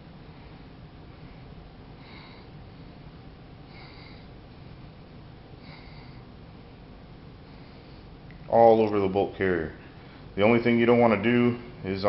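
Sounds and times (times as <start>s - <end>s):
low room hum: 0.0s - 12.0s
person breathing through nose: 2.0s - 2.6s, 3.7s - 4.4s.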